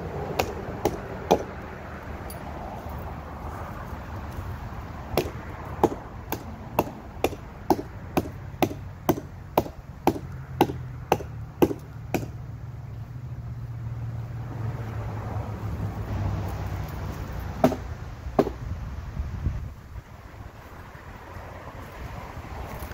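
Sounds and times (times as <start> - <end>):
chopping into a branch: 0.3 - 1.6, 5.1 - 12.4, 17.6 - 18.6.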